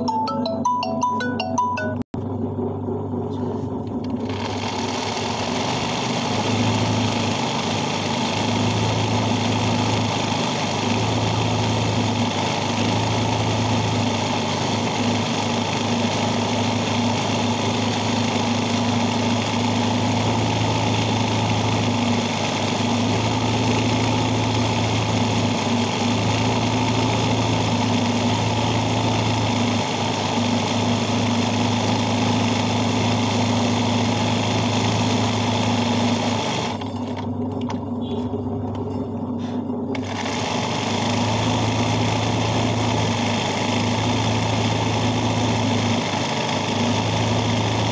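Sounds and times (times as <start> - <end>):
sewing machine running: 3.9 - 37.3, 39.9 - 47.9.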